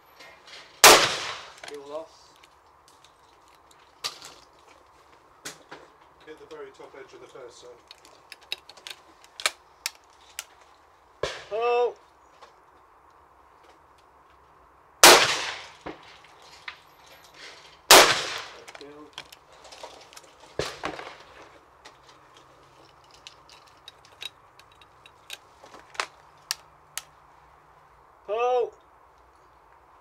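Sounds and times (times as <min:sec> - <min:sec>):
shotgun shots: 0:00.8 - 0:01.6, 0:15.0 - 0:16.0, 0:17.9 - 0:18.7
small metallic clicks and clinks: 0:07.3 - 0:10.7, 0:21.9 - 0:27.1
gun broken open clack: 0:07.9 - 0:10.5.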